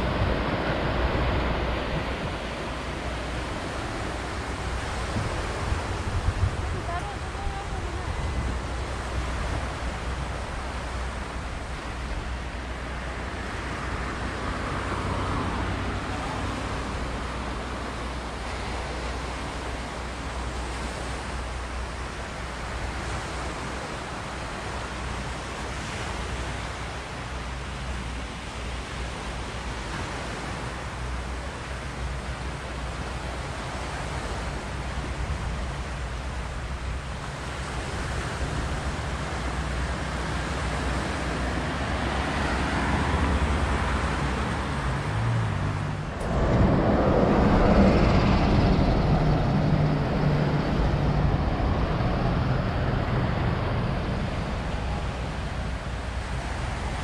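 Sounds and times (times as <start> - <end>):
small waves on rocky shore: 0.0 - 57.0
wind buffeting microphone: 0.0 - 57.0
vehicle approaching: 37.5 - 57.0.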